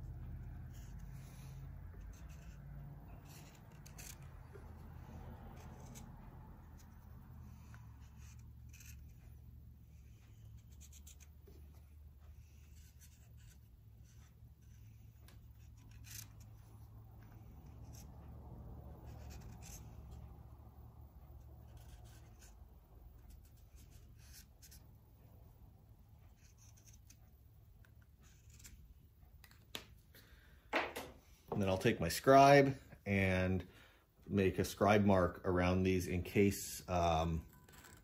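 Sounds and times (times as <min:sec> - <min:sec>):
low steady hum: 0:00.0 - 0:38.0
marker scratching on metal: 0:00.4 - 0:25.0, 0:26.3 - 0:28.9, 0:37.6 - 0:38.0.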